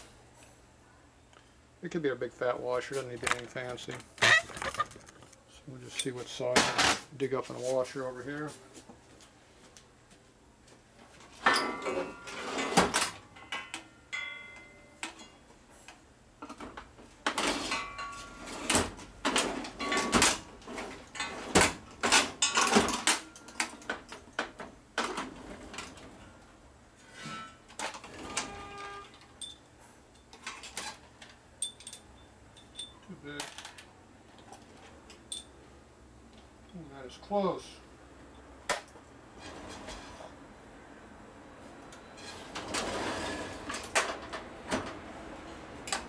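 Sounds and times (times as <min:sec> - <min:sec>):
metal hardware clinking: 0:31.6 - 0:33.9, 0:34.7 - 0:35.6, 0:38.7 - 0:39.0.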